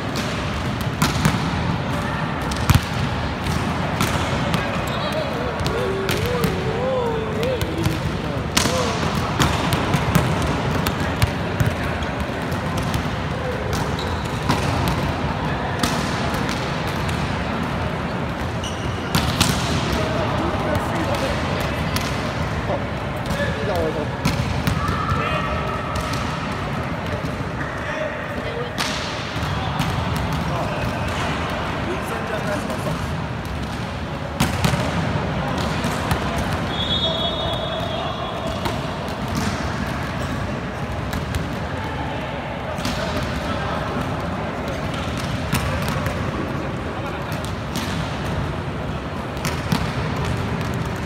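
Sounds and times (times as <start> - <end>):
voices in sports hall: 0.0 - 51.0
volleyball thudding on court: 2.4 - 4.8, 7.7 - 13.1.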